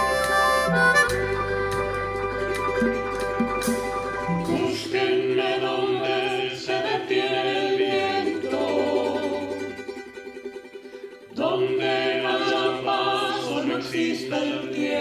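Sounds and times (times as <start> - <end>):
group of voices singing: 4.3 - 9.9, 11.3 - 15.0.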